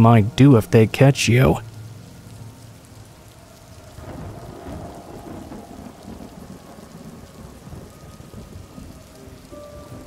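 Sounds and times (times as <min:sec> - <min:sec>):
steady rain: 0:00.0 - 0:10.0
thunder rumbling: 0:02.9 - 0:10.0.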